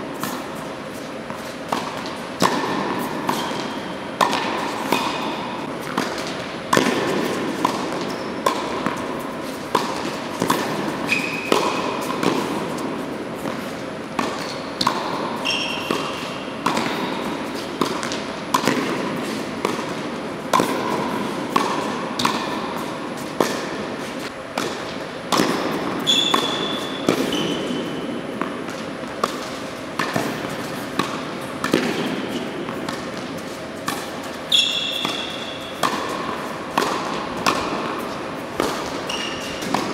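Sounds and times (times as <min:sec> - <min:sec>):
tennis ball hit with rackets: 0:00.2 - 0:39.9
sneaker squeaks on hard court: 0:11.0 - 0:11.5, 0:15.4 - 0:16.4, 0:26.0 - 0:27.8, 0:34.5 - 0:35.8, 0:39.0 - 0:39.6.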